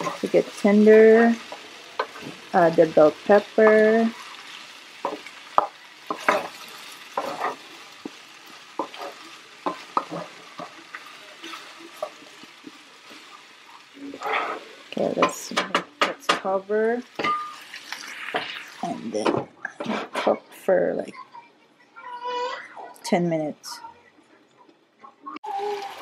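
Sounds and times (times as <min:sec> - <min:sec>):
food sizzling in a frying pan: 0:00.0 - 0:21.3, 0:25.4 - 0:26.0
wooden spatula scraping pan: 0:06.1 - 0:08.2, 0:08.8 - 0:12.4, 0:14.1 - 0:15.4.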